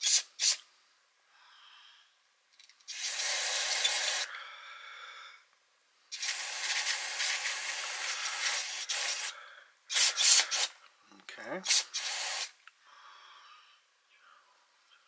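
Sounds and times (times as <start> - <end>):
aerosol can spraying: 0.0 - 0.6, 2.9 - 4.3, 6.1 - 10.8, 11.6 - 12.6.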